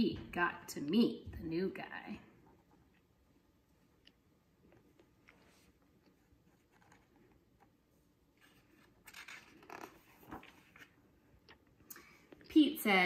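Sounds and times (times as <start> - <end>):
paper page turning: 5.2 - 7.7, 8.4 - 11.1.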